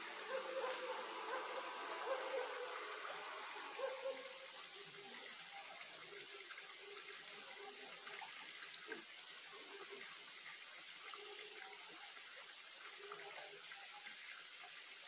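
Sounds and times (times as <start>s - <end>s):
high-pitched insect drone: 0.0s - 7.6s
stream water flowing: 0.0s - 15.0s.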